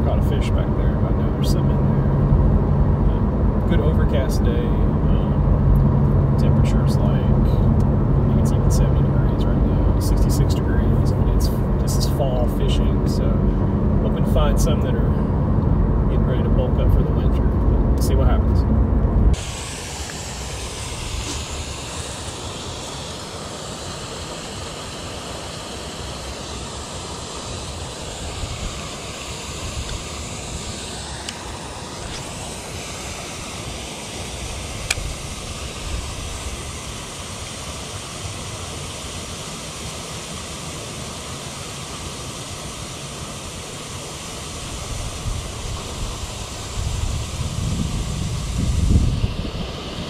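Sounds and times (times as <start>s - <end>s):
wind buffeting microphone: 44.9s - 50.0s.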